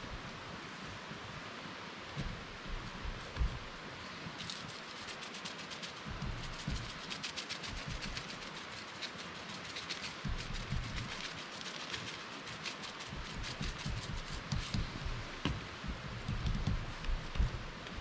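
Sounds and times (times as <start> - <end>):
seasoning shaker rattling: 4.4 - 14.8
dull thumps on board: 13.4 - 18.0.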